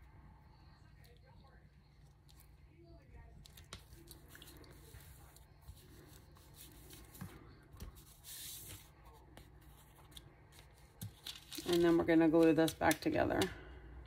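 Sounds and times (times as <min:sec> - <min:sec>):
soft taps and rubs on envelope: 0:03.5 - 0:11.2
paper rustle: 0:03.5 - 0:13.0.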